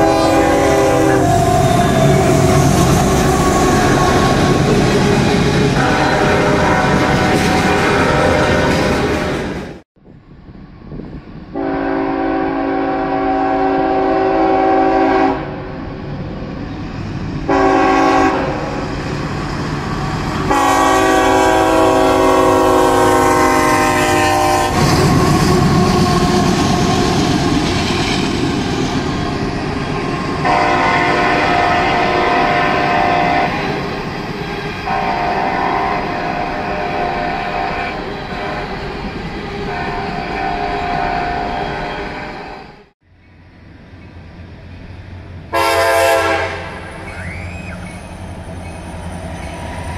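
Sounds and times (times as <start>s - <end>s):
locomotive air horn blasts: 0.0s - 9.5s, 11.5s - 15.8s, 17.5s - 18.8s, 20.5s - 27.1s, 30.4s - 33.8s, 34.8s - 38.8s, 39.7s - 42.8s, 45.5s - 47.8s
moving train rumble: 0.0s - 49.9s.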